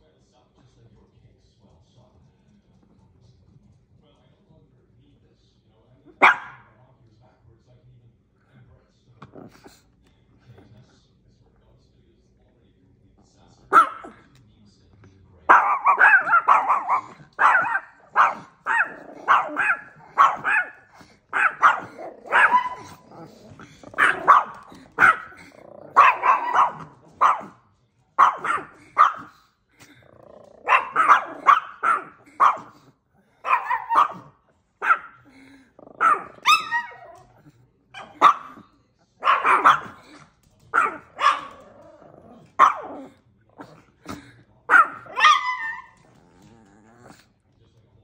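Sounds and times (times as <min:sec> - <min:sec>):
small dog barking: 0:06.1 - 0:06.8, 0:13.7 - 0:14.3, 0:15.5 - 0:27.6, 0:28.2 - 0:29.5, 0:30.3 - 0:47.2
dog wavering cry: 0:36.0 - 0:37.2, 0:44.7 - 0:47.1.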